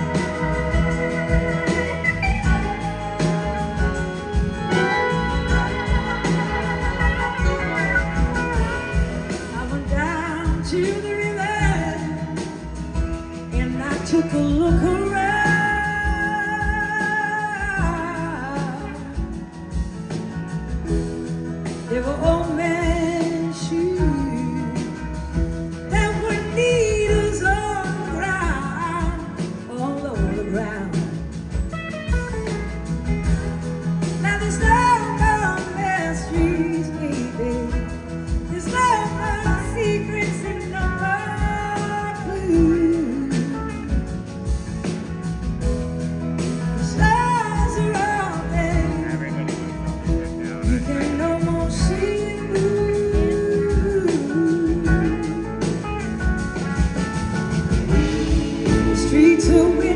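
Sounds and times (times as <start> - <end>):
person singing: 0.0 - 12.9, 46.8 - 57.1, 57.9 - 59.9
bass guitar: 0.0 - 59.9
drums: 0.0 - 59.9
electric guitar: 0.0 - 59.9.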